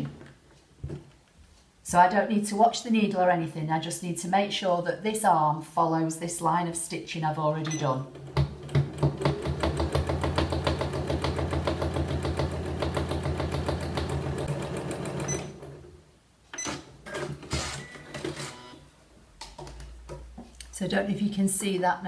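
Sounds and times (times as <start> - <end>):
sewing machine stitching: 8.1 - 15.8.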